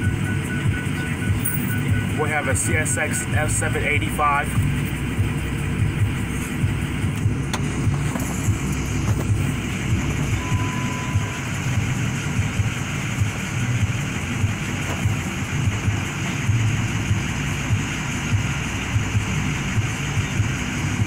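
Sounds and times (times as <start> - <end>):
faint steady tone: 10.2 - 11.8.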